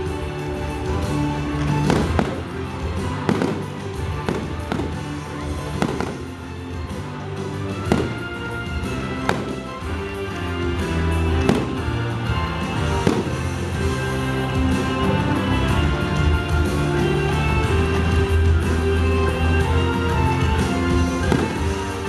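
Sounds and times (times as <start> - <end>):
loud show music: 0.0 - 22.0
fireworks banging: 0.9 - 14.0, 21.1 - 22.0.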